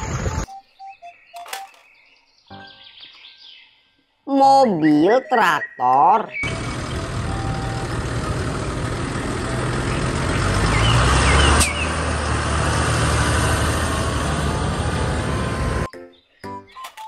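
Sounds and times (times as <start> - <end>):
tractor diesel engine running: 6.4 - 15.9.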